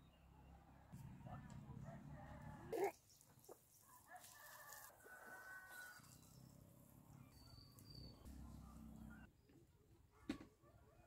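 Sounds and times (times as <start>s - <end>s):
outdoor ambience: 0.0s - 11.0s
faint rooster crowing: 1.8s - 2.9s, 3.8s - 6.4s.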